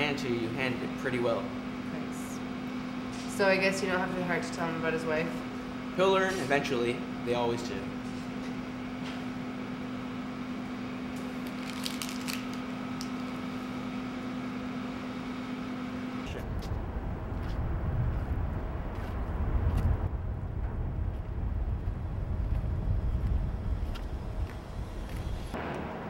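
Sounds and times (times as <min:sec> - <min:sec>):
electrical hum: 0:00.0 - 0:26.0
low outdoor rumble: 0:16.2 - 0:26.0.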